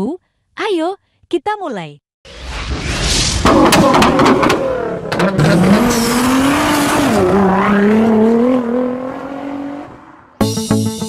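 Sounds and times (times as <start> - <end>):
sports car engine revving: 3.6 - 10.0.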